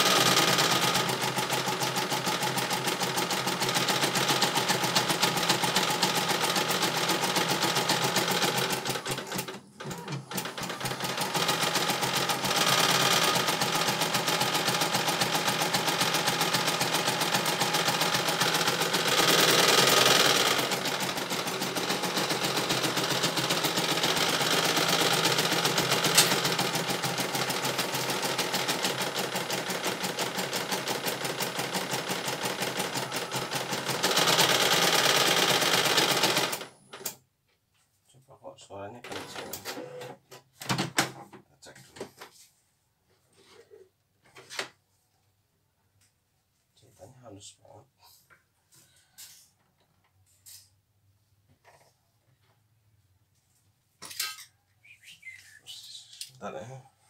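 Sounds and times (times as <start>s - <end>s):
embroidery machine needle chatter: 0.0s - 36.6s.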